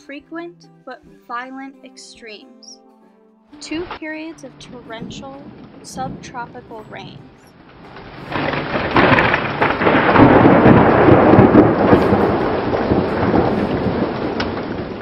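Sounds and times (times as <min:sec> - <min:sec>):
rolling thunder: 0:04.6 - 0:15.0
steady rain: 0:04.6 - 0:15.0.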